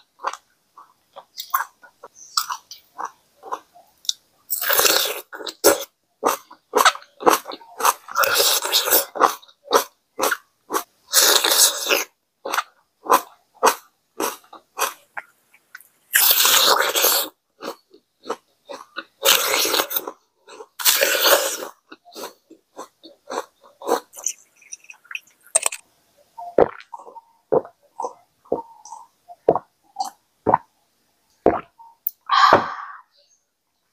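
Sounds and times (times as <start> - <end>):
wet chewing clicks: 20.9 - 25.8.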